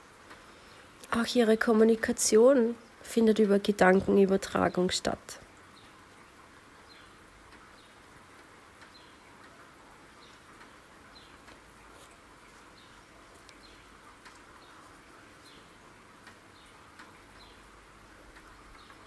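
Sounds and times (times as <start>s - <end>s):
rain hissing: 0.0s - 19.0s
bird chirping: 5.7s - 8.1s, 8.8s - 15.8s, 16.5s - 17.8s, 18.4s - 19.0s.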